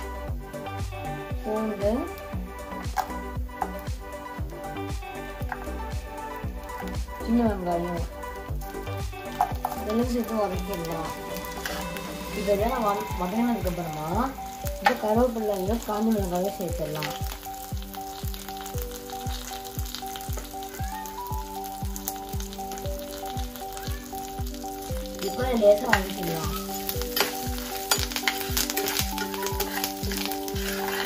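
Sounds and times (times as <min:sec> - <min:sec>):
background music with beat: 0:00.0 - 0:31.0
food sizzling in hot oil: 0:00.0 - 0:31.0
spoon stirring in pan: 0:09.3 - 0:13.7, 0:23.8 - 0:31.0.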